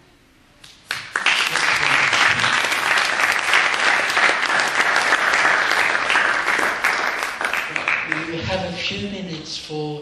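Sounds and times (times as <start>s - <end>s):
audience applauding: 0.9s - 8.6s.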